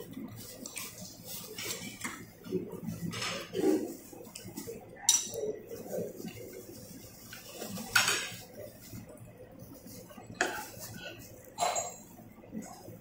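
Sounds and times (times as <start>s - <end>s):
low background murmur: 0.0s - 13.0s
chopsticks clinking on ceramic bowls: 5.1s - 5.6s.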